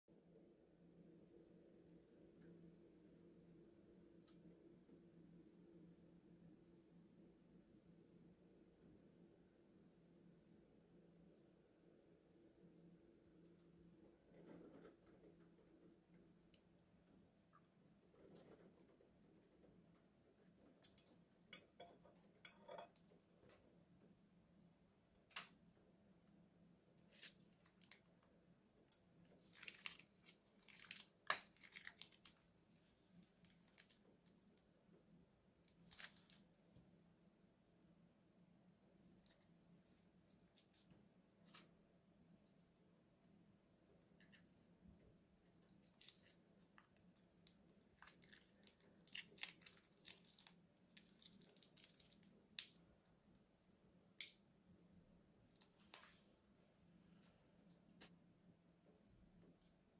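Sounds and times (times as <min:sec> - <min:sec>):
slime squishing: 0:29.0 - 0:34.7, 0:35.7 - 0:36.6, 0:45.5 - 0:53.2
plastic piping bag crinkling: 0:29.3 - 0:34.6, 0:35.7 - 0:36.5, 0:45.6 - 0:52.8.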